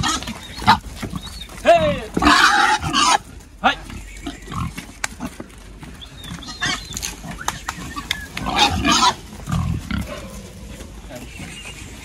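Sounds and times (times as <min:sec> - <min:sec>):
pigs squealing and grunting: 0:00.0 - 0:11.2.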